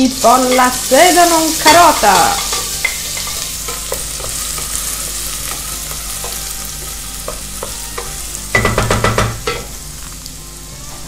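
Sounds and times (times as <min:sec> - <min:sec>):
vegetables sizzling in oil: 0:00.0 - 0:11.0
wooden spoon knocks: 0:08.6 - 0:09.7.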